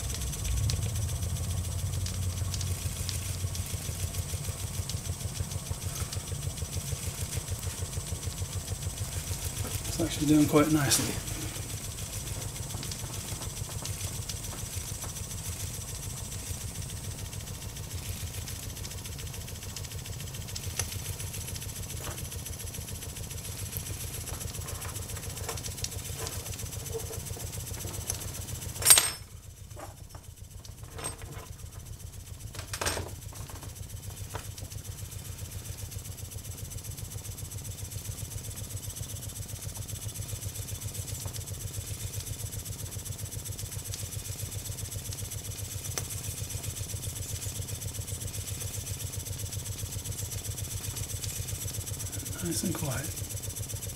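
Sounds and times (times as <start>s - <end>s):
model steam engine running: 0.0s - 53.9s.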